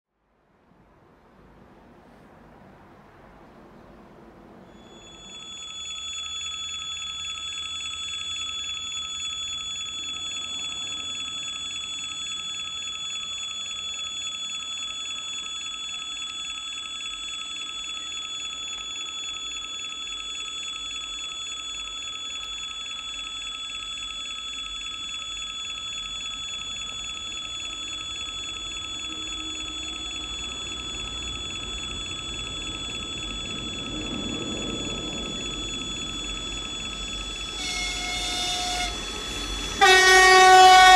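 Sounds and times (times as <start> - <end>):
level crossing warning tone: 4.6 - 40.9
diesel locomotive rumble: 28.8 - 40.9.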